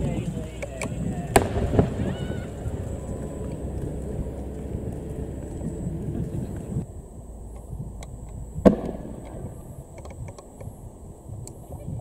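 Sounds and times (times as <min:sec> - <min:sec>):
low outdoor rumble: 0:00.0 - 0:12.0
firework bang: 0:01.3 - 0:02.9, 0:08.6 - 0:09.5.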